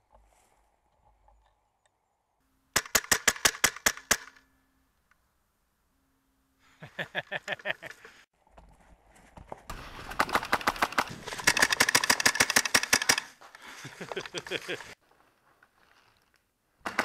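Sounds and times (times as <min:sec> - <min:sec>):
airsoft rifle rapid shots: 0:02.8 - 0:04.4, 0:10.2 - 0:13.3.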